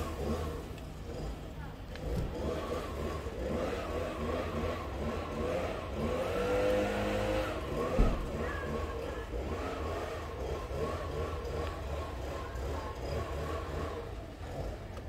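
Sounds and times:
brush cutter engine revving: 0.0s - 15.0s
thump: 7.8s - 8.4s.

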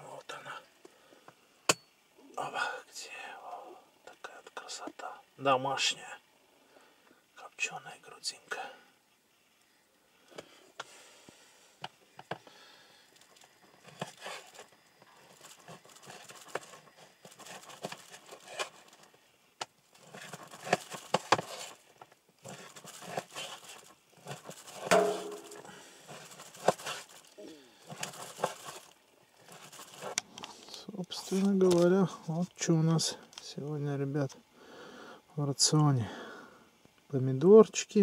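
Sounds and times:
plastic packaging rustling: 13.2s - 19.1s, 19.9s - 30.2s.

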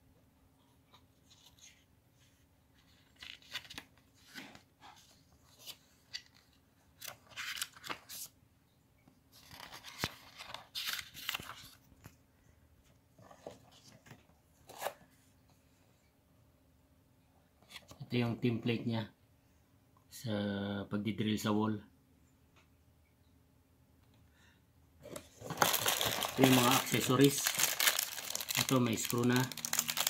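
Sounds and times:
paper pages rustling: 1.3s - 8.3s, 9.4s - 12.2s, 25.0s - 30.0s.

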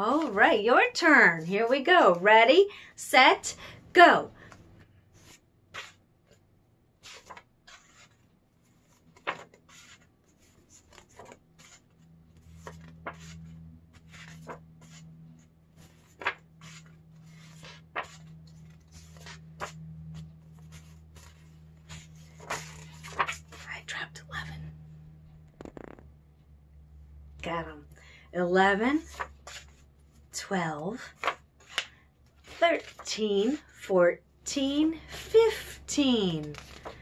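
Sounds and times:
paper cards flipping: 7.0s - 15.1s, 15.8s - 23.7s, 25.5s - 26.1s, 29.0s - 29.8s, 31.1s - 33.6s, 36.3s - 37.0s
low steady hum: 8.2s - 37.0s.

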